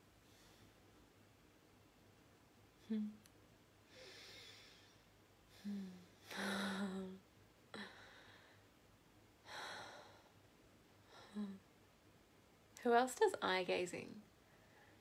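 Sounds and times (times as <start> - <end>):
woman humming: 2.8 - 3.3, 5.6 - 7.2, 11.2 - 11.7
woman breathing: 3.9 - 8.8, 9.4 - 10.4, 14.4 - 15.0
woman sighing: 5.6 - 7.2.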